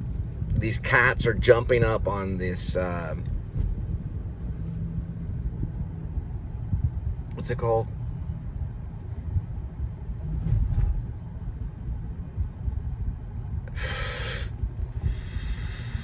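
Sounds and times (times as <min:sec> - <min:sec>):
car cabin road rumble: 0:00.0 - 0:16.0.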